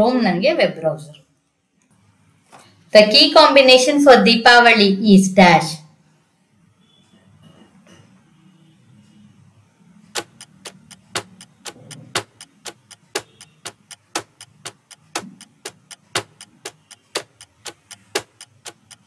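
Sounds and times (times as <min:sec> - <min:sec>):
countdown timer clock ticking: 0:10.1 - 0:19.0.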